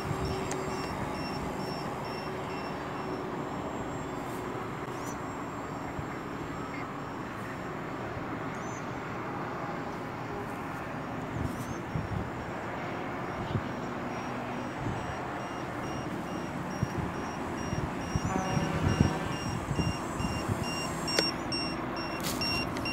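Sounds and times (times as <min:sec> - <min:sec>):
distant model airplane drone: 0:00.0 - 0:22.9
wind rushing over microphone: 0:11.2 - 0:13.9, 0:16.5 - 0:21.6
wind gusts thumping microphone: 0:16.7 - 0:21.6.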